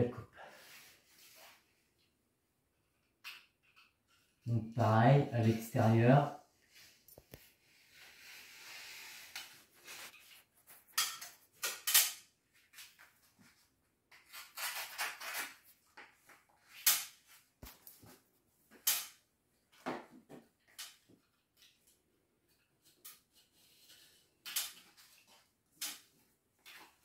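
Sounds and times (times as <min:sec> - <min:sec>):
spatula scraping and rustling: 0:06.7 - 0:11.6
spatula hissing over wallpaper: 0:07.6 - 0:10.2.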